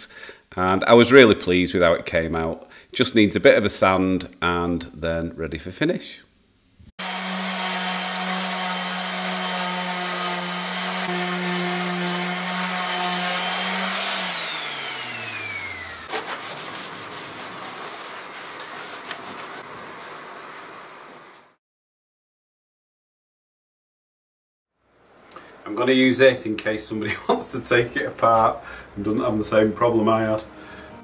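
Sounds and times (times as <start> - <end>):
orbit sander whining: 7.0 - 16.1
shop vacuum running: 7.0 - 18.8.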